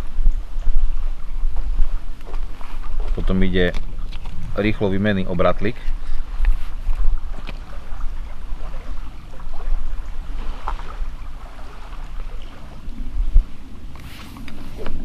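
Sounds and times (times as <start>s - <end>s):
wind buffeting microphone: 0.0s - 15.0s
faint clicks of fishing swivel: 13.9s - 15.0s.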